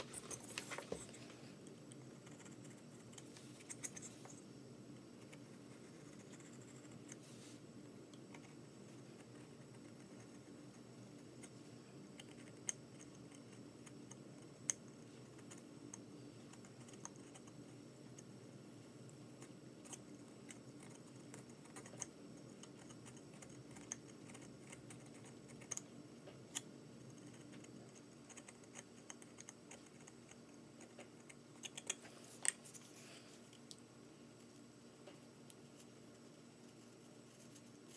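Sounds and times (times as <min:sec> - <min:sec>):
low steady hum: 0:00.0 - 0:37.9.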